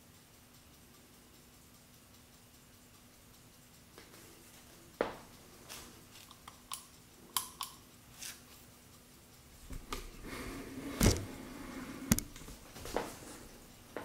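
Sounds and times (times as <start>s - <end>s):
small watch clicks: 5.2s - 10.2s.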